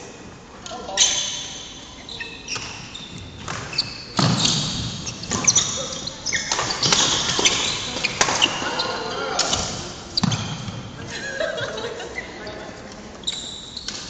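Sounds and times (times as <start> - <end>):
shoes squeaking on floor: 0.8 - 11.0, 12.0 - 14.0
rackets striking shuttlecock: 3.4 - 8.6.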